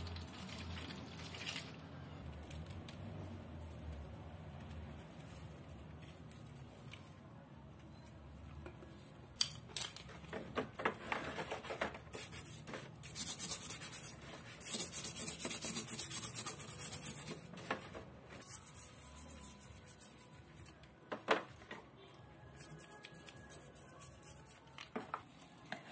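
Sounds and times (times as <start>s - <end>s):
toothbrush scrubbing plastic: 12.2s - 17.4s, 22.6s - 24.9s.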